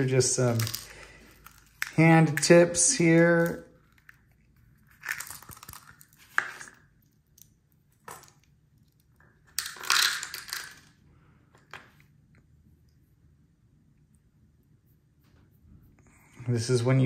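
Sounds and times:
plastic pieces clicking together: 0:00.5 - 0:02.5, 0:08.1 - 0:10.9
plastic pieces rattling in cup: 0:00.5 - 0:04.2, 0:04.8 - 0:06.8, 0:09.6 - 0:10.9.

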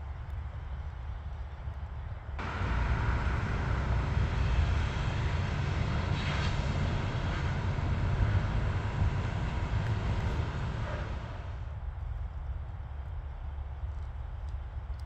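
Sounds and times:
distant traffic rumble: 0:02.4 - 0:12.4.

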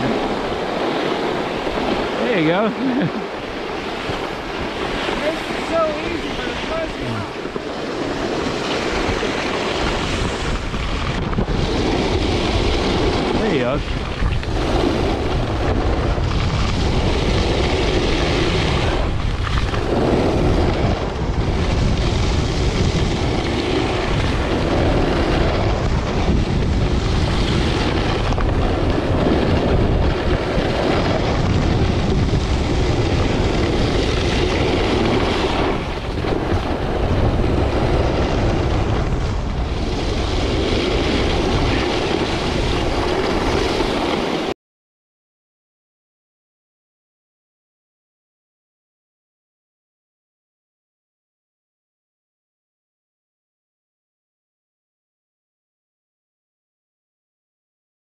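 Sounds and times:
skis sliding on snow: 0:00.0 - 0:44.5
wind on microphone: 0:00.0 - 0:44.6.

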